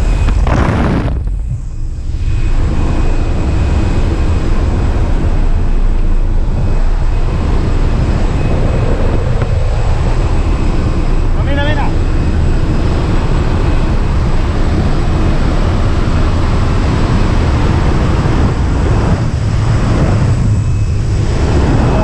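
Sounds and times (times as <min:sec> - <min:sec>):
plane engine and propeller: 0:00.0 - 0:22.0
wind blasting through door: 0:00.0 - 0:22.0
wind buffeting microphone: 0:00.0 - 0:22.0.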